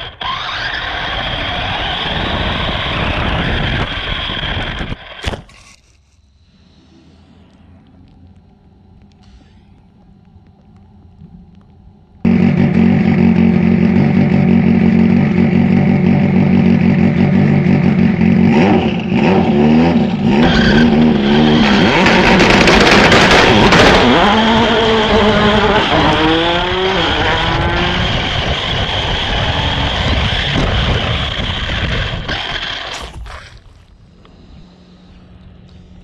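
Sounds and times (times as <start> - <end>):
toy car motor revving: 0.0 - 5.1, 20.4 - 33.6.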